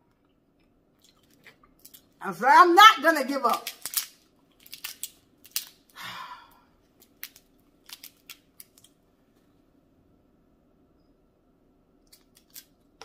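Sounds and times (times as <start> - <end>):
crab shell clicking and snapping: 3.6 - 6.0, 7.0 - 9.0, 12.1 - 12.7.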